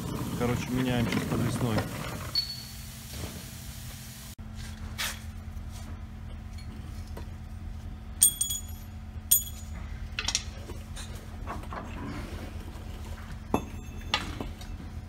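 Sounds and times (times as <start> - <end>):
low shop hum: 0.0 - 15.0
metal tools clinking and knocking: 8.2 - 10.5.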